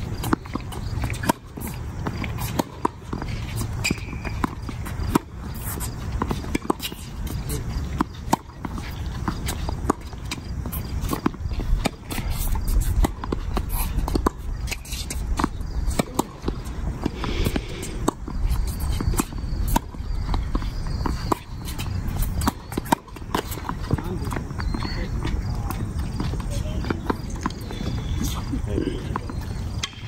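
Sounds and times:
footsteps on hard court: 0:00.0 - 0:30.0
racket striking tennis ball: 0:00.2 - 0:24.0.

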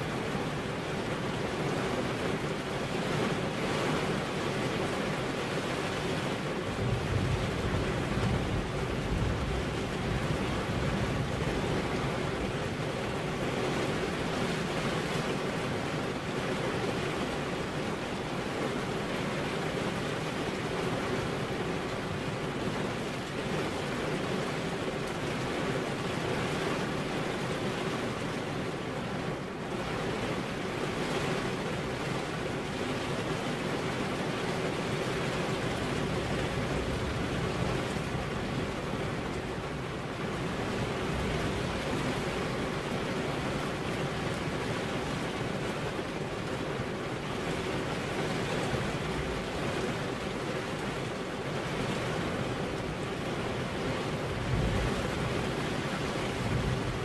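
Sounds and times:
steady rain hiss: 0:00.0 - 0:57.0.

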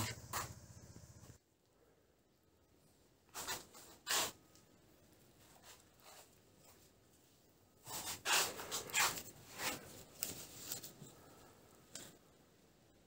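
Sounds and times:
net twine and rope rustling: 0:03.3 - 0:12.2.

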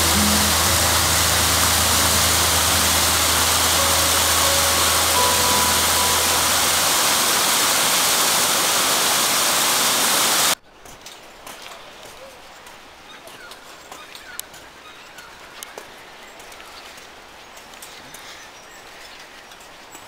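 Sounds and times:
water rushing over rocks: 0:00.0 - 0:10.6.

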